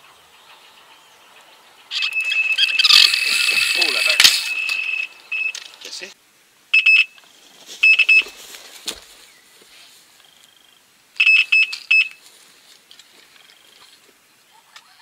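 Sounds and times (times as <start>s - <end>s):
electronic bite alarm beeps: 2.0s - 5.7s, 6.8s - 7.2s, 7.8s - 8.3s, 11.2s - 12.2s.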